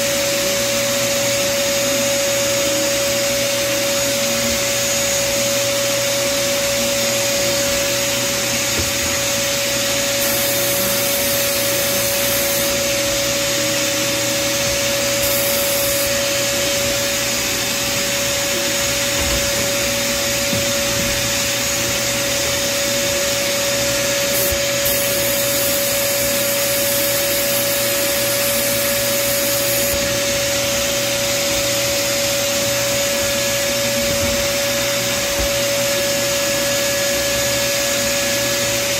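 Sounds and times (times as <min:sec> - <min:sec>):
sandblast cabinet hum: 0:00.0 - 0:38.9
air hissing: 0:07.0 - 0:37.2
blast gun hissing: 0:10.0 - 0:13.0, 0:14.6 - 0:16.8, 0:24.3 - 0:30.2.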